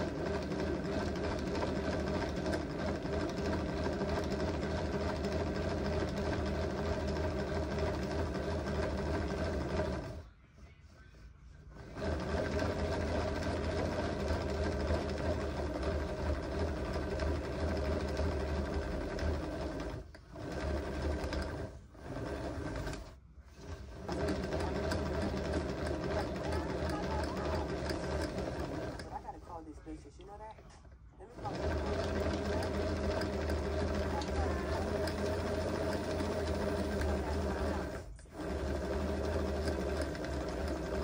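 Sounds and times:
small electric motor running: 31.4 - 41.0.

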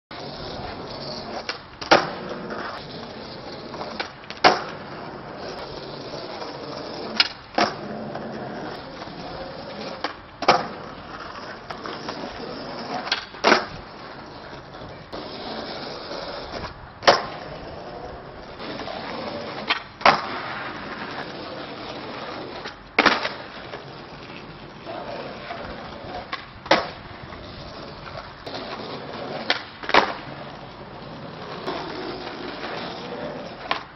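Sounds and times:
skateboard wheels rolling on asphalt: 0.1 - 33.9
skateboard wooden clack: 0.6 - 2.8, 3.7 - 5.0, 6.3 - 9.1, 9.8 - 14.9, 16.5 - 17.6, 18.8 - 21.3, 22.4 - 30.8, 31.4 - 33.9.

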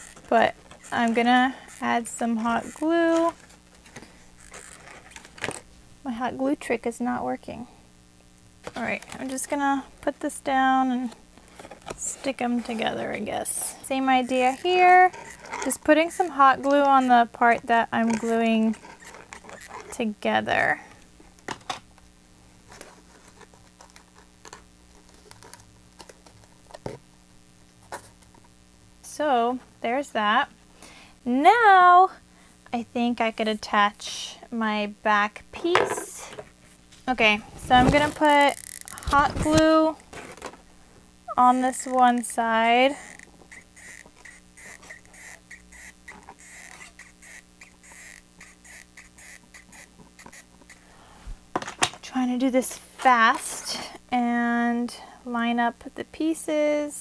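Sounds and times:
glue gun clicks and squeaks: 18.2 - 19.9, 38.5 - 39.0, 43.0 - 50.8
cardstock rustling and tapping: 37.6 - 40.6.

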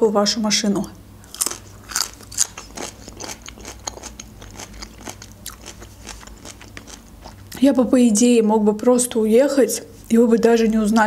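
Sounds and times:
person chewing food: 1.2 - 7.6.

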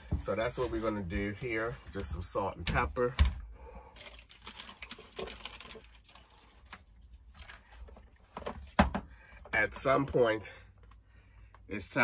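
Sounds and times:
paper and plastic wrapping crinkling: 4.0 - 8.6.

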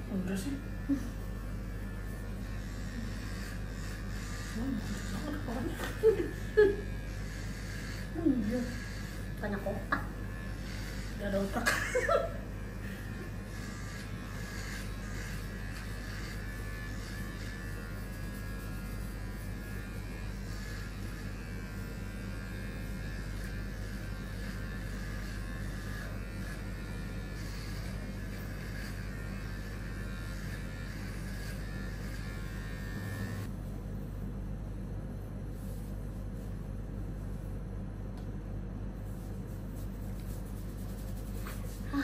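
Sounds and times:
electric hair clippers buzzing: 0.0 - 33.5.

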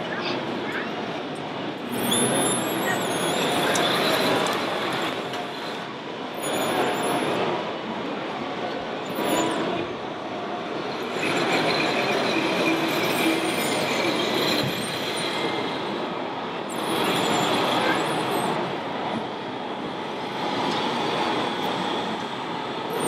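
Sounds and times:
short high squeals: 1.9 - 4.1.

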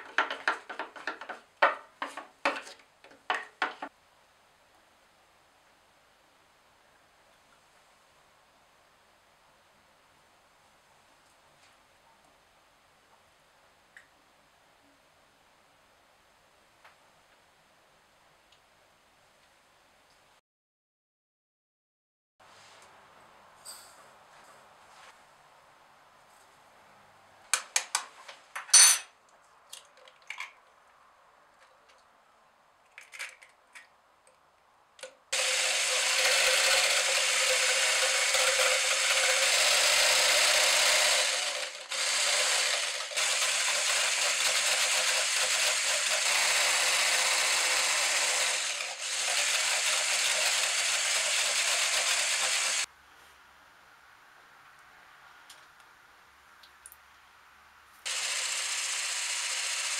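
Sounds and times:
sharp clicks and knocks: 0.0 - 3.9
electric whisk beating egg white: 35.4 - 52.9, 58.1 - 59.9.

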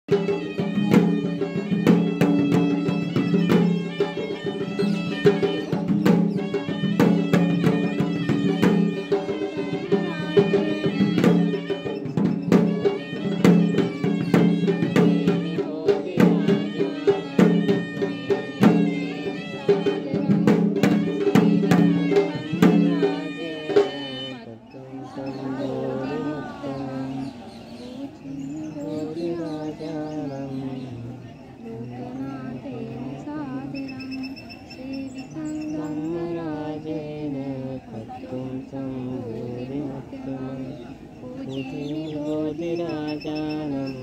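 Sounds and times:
reed pipe droning melody: 0.1 - 24.5
drums beaten in busy rhythm: 0.1 - 44.0.

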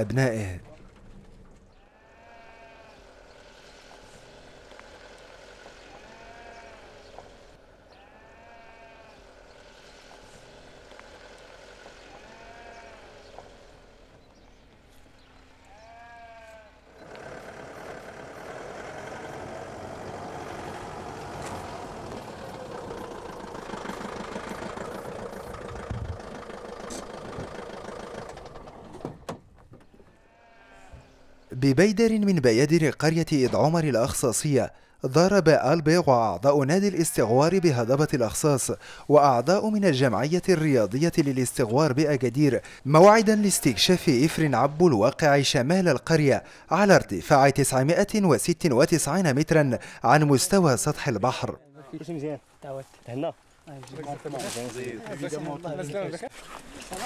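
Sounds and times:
livestock bleating: 1.8 - 3.2, 5.8 - 7.1, 7.9 - 9.3, 12.0 - 13.3, 15.6 - 18.5, 30.1 - 31.4, 37.2 - 38.0, 43.0 - 44.4
vehicle engine running: 9.3 - 15.6, 16.9 - 29.2.

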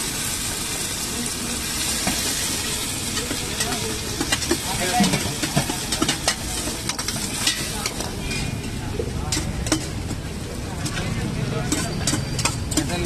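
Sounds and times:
oil sizzling deep-frying: 0.0 - 13.0
metal ladle scraping wok: 1.9 - 10.0, 10.8 - 13.0.

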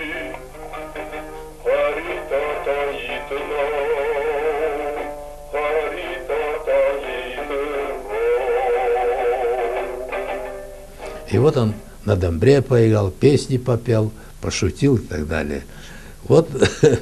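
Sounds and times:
person singing with vibrato: 0.0 - 0.6, 1.5 - 10.2.

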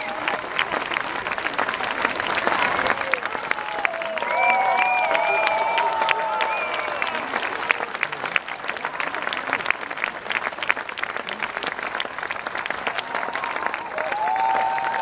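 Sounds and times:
audience applauding: 0.0 - 15.0
crowd calling out: 13.3 - 15.0.

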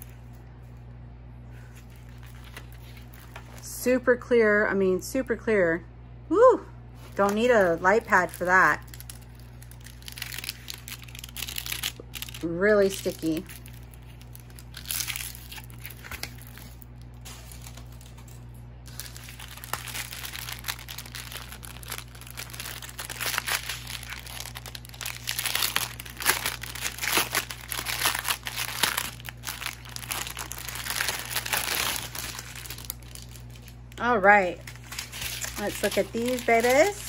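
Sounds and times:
plastic packaging crinkling: 1.5 - 3.7, 7.0 - 37.0.

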